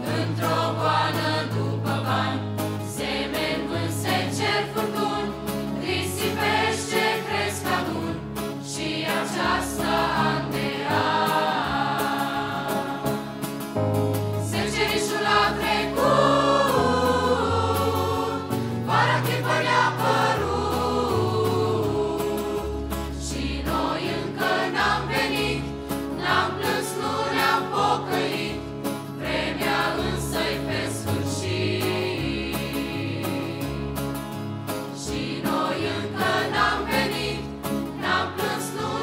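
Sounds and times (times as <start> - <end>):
acoustic guitar: 0.0 - 39.0
choir singing a hymn: 0.0 - 39.0
keyboard: 0.0 - 39.0.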